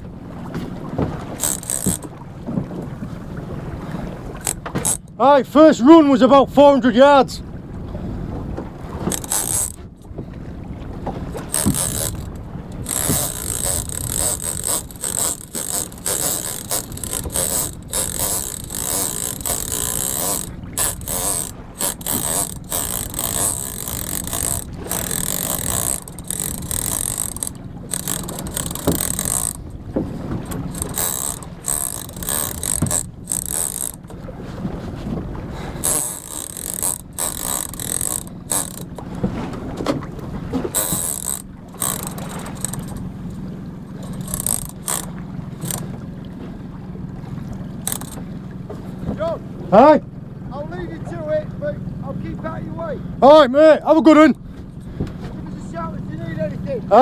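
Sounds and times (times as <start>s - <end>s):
fishing reel whirring and ratcheting: 1.4s - 2.1s, 4.4s - 5.2s, 9.0s - 10.0s, 11.4s - 29.7s, 30.4s - 34.2s, 35.7s - 39.1s, 40.7s - 43.1s, 44.0s - 45.9s, 47.8s - 48.2s.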